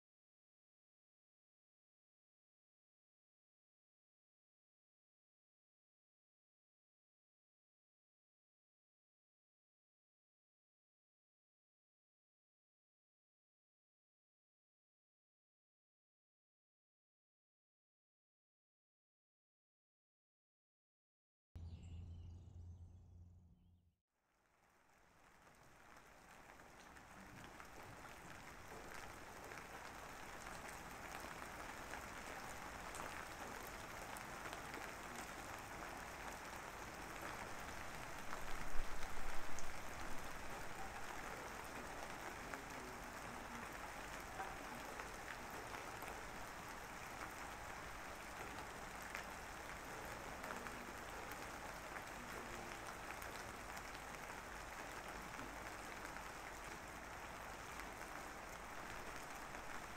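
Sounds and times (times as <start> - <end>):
rain-like hiss: 24.3 - 59.9.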